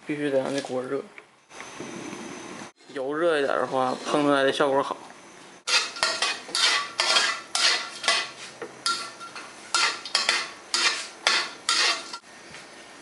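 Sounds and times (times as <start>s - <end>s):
metal spatula scraping wok: 2.8s - 4.3s, 5.6s - 12.2s.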